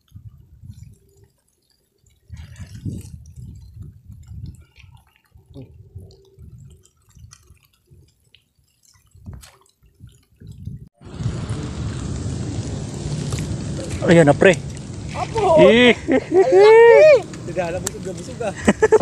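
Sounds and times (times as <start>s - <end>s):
wind buffeting microphone: 0.0s - 1.3s, 2.2s - 8.2s, 9.0s - 19.0s
light rain ticks: 0.0s - 19.0s
rushing hiss of rain and wind: 10.4s - 19.0s.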